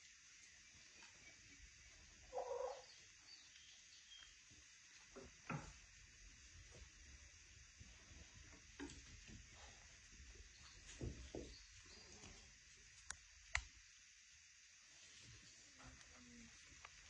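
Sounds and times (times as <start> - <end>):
hen clucking: 2.2 - 3.0
faint clicks and taps: 8.1 - 9.6, 13.0 - 13.8.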